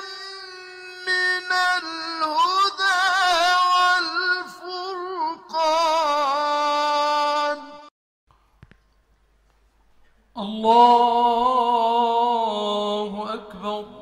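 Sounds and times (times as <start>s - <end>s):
person chanting: 0.0s - 7.9s, 10.3s - 14.0s.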